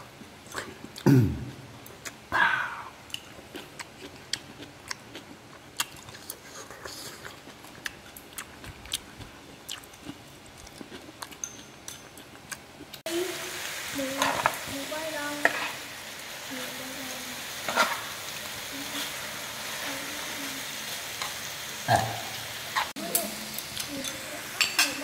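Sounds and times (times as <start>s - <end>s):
people chewing: 0.2s - 13.0s
chopsticks clicking against bowls: 10.7s - 12.4s.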